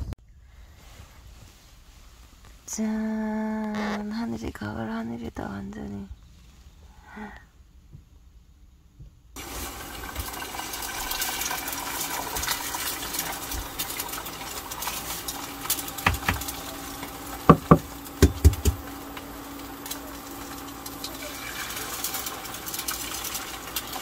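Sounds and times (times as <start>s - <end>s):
steady background hum: 0.0s - 24.0s
eggs knocking on ceramic bowl: 16.1s - 16.5s, 17.5s - 18.8s.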